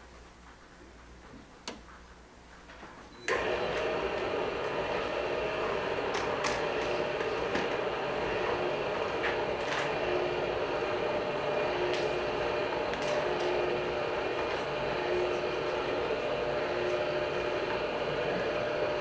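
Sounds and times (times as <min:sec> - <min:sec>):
electric motor humming: 0:03.3 - 0:19.0.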